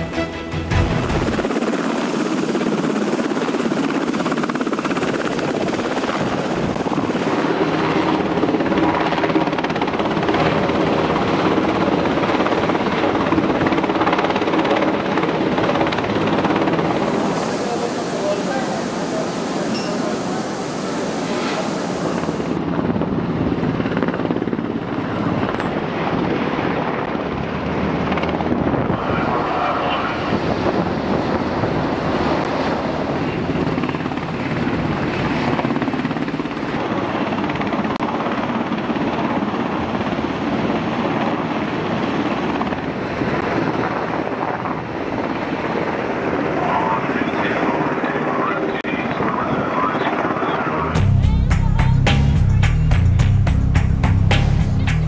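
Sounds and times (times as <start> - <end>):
helicopter flying: 0.0 - 55.0.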